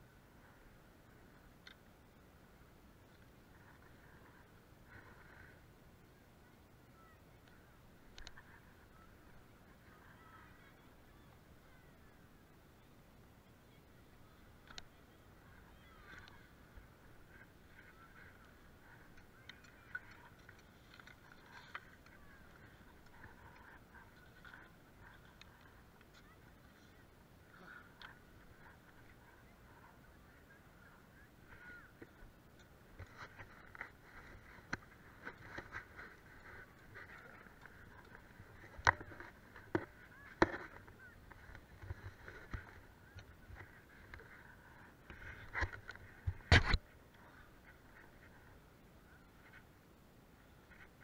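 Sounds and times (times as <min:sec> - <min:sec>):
faint distant voices: 0:00.0 - 0:51.0
skis knocking and clattering: 0:33.0 - 0:46.8.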